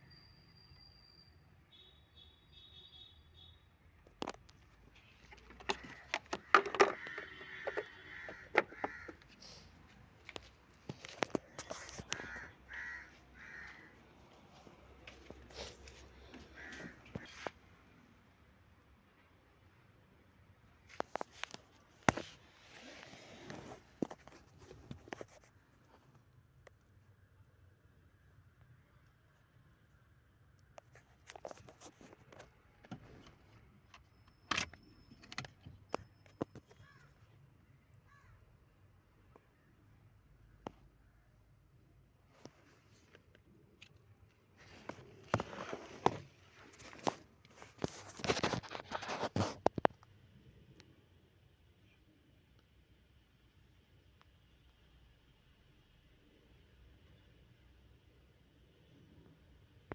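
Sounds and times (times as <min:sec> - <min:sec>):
sharp clicks and knocks: 0:05.2 - 0:09.3
crow cawing: 0:05.7 - 0:09.4, 0:11.9 - 0:14.0, 0:16.3 - 0:17.3, 0:38.1 - 0:38.4.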